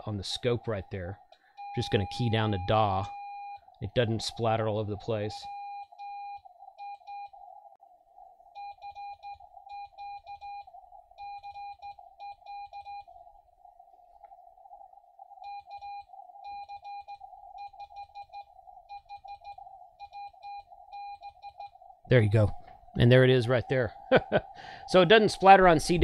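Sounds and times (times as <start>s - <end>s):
receiver hiss: 0.0s - 26.0s
morse code tone: 1.6s - 7.4s, 8.5s - 13.1s, 15.4s - 21.8s.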